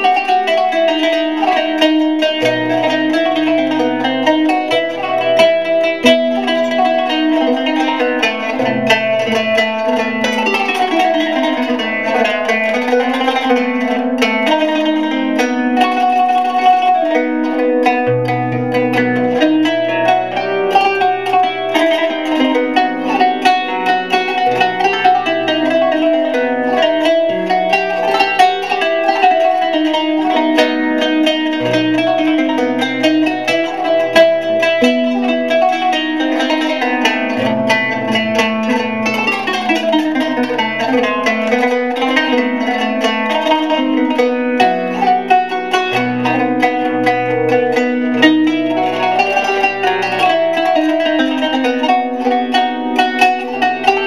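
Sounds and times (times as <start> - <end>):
plucked string instrument music: 0.0 - 54.0.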